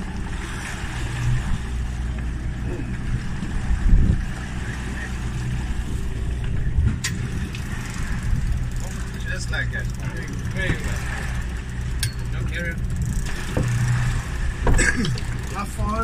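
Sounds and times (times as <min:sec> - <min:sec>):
boat engine humming: 0:00.0 - 0:16.0
wind and water noise: 0:00.0 - 0:16.0.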